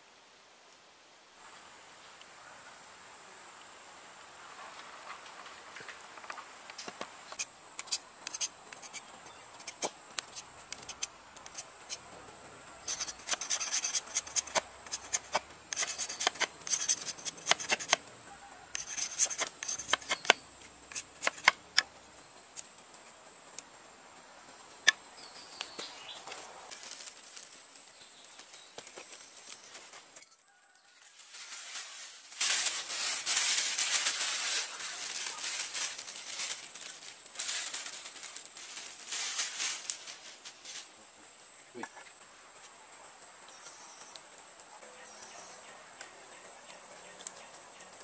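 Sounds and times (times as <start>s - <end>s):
machete scraping bamboo: 7.3s - 12.0s, 12.8s - 18.0s, 18.7s - 21.9s.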